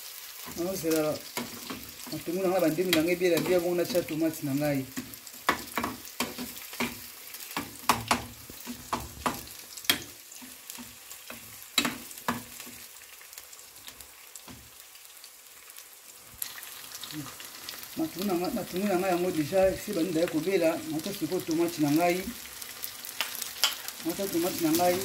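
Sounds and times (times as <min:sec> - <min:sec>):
vegetables sizzling in oil: 0:00.0 - 0:25.0
metal spoon scraping a pan: 0:00.4 - 0:04.2.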